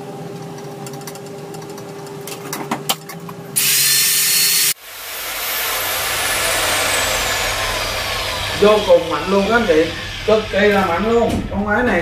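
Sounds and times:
electric motor whining: 3.6 - 11.2.

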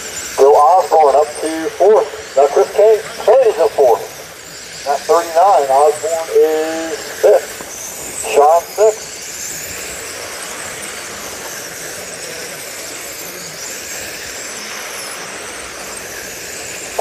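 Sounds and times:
electric rc cars whining: 0.0 - 17.0
hiss: 0.0 - 17.0.

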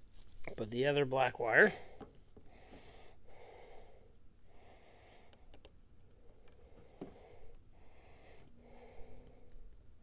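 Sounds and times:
faint breathing: 1.7 - 10.0
small clicks of wires: 5.3 - 5.8, 6.4 - 6.6.

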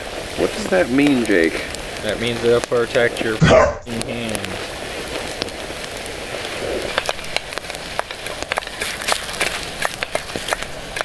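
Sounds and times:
campfire crackling: 0.0 - 11.0.

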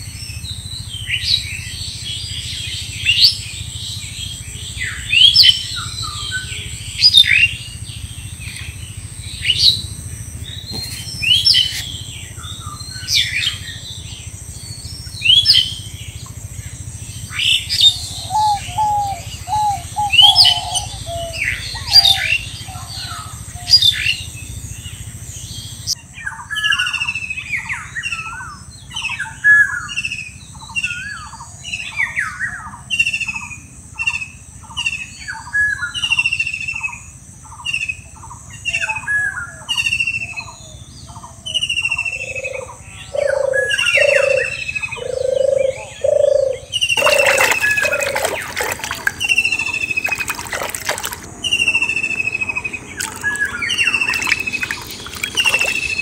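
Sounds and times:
low hoots: 17.9 - 22.9, 42.3 - 51.8
hands splashing in muddy water: 47.0 - 51.4, 53.0 - 56.0.

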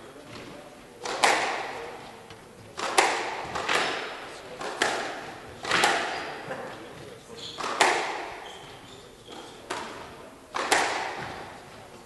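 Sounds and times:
squash ball cracking off walls: 1.0 - 1.9, 2.8 - 6.5, 7.5 - 8.4, 9.7 - 11.6.

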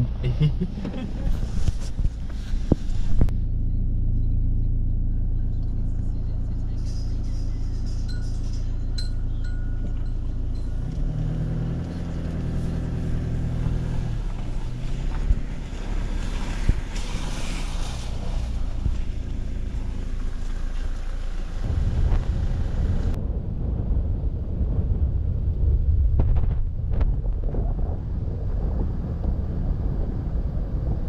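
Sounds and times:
pitched engine hum: 0.0 - 23.3
vehicle engine drone: 0.0 - 31.0
rushing road hiss: 15.8 - 23.2.

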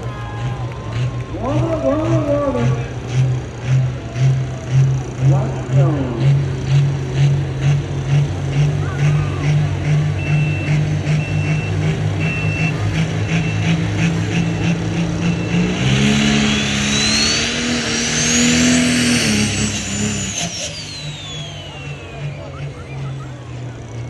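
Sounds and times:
diesel tractor engine revving: 0.0 - 24.0
turbo whistle: 20.0 - 23.2.

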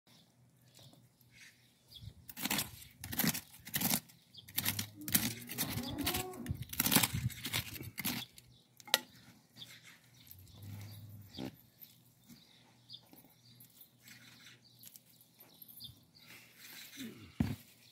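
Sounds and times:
trowel scraping into dry soil: 2.3 - 12.0.

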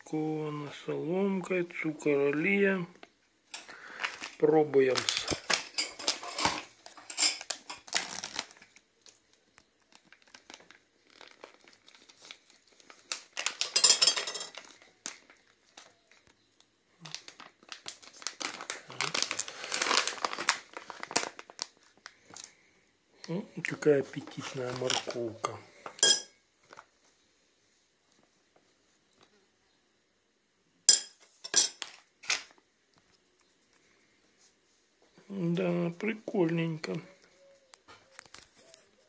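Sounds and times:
plastic food pouch crinkling: 3.7 - 13.8, 14.5 - 16.4, 17.0 - 22.6, 23.2 - 25.5.

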